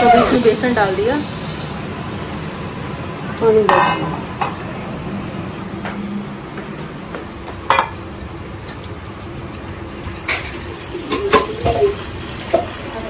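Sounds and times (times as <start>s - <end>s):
metal pots clanking: 3.6s - 4.6s, 7.7s - 8.0s, 10.2s - 12.8s
tap water running into pot: 9.6s - 13.0s.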